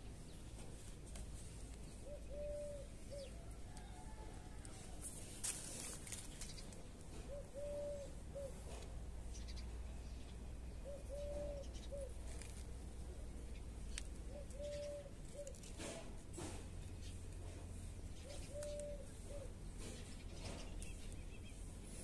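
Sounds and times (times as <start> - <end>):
dove cooing: 1.9 - 4.9, 7.1 - 8.9, 10.7 - 12.7, 14.2 - 16.0, 18.2 - 20.0.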